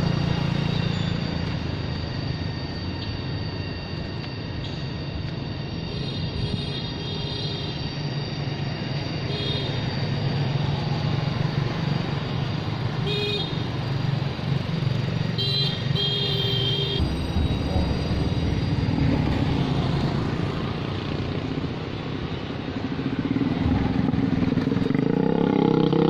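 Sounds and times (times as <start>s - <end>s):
motorcycles riding past: 18.9s - 26.0s.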